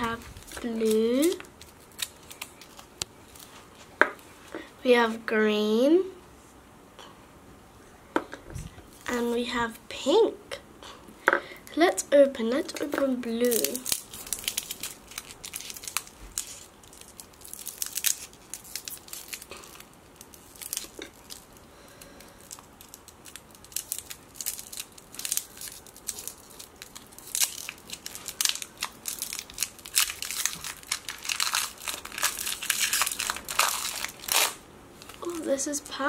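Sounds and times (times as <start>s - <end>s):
wrapper crinkling: 0.0s - 3.6s, 12.9s - 36.0s.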